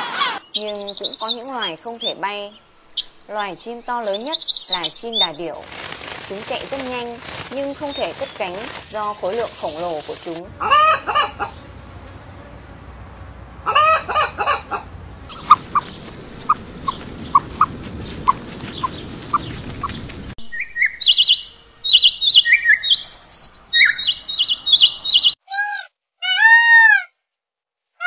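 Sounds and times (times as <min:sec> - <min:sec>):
peafowl loud arching calls: 0:00.0 - 0:02.2, 0:04.0 - 0:27.1
songbird chirping high notes: 0:00.3 - 0:05.7, 0:06.3 - 0:25.4
hen clucking: 0:06.3 - 0:25.3.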